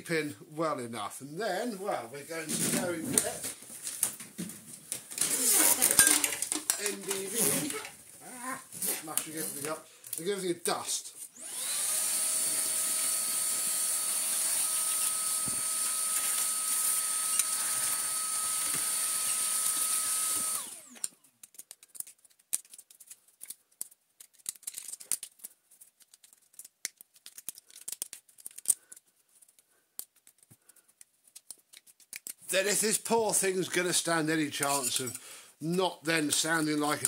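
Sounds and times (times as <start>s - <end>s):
vacuum cleaner whining: 5.2s - 8.0s, 11.2s - 21.2s
metal parts clicking: 21.0s - 30.5s, 31.4s - 32.4s.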